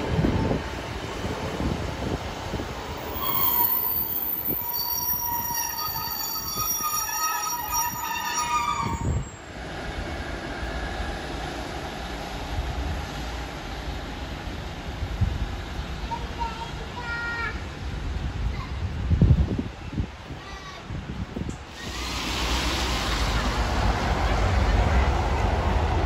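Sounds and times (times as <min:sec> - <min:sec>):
low train rumble: 0:00.0 - 0:26.0
train wheels squealing: 0:03.0 - 0:09.5.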